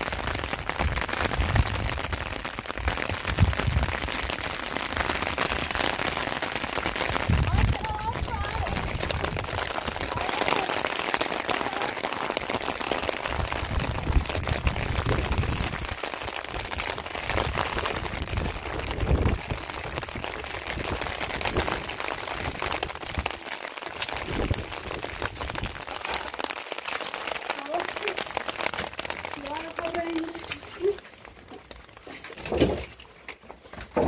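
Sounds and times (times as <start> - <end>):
steady rain: 0.0 - 34.0
low rumbles: 7.1 - 10.4.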